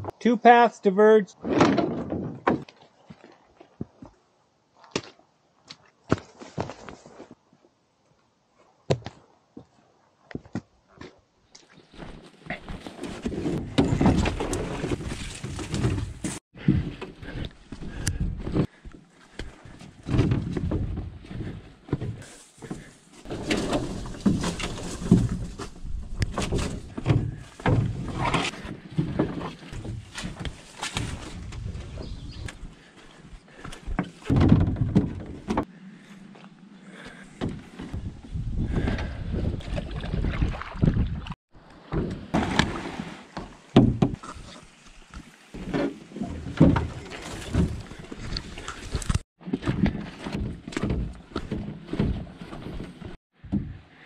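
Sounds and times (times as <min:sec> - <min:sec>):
footsteps on dirt trail: 0:04.8 - 0:07.4, 0:14.5 - 0:34.3.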